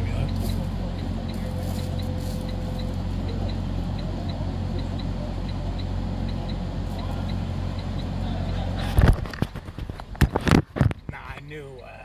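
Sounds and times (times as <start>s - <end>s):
diesel engine idling: 0.0s - 12.0s
light ticking: 2.0s - 8.6s.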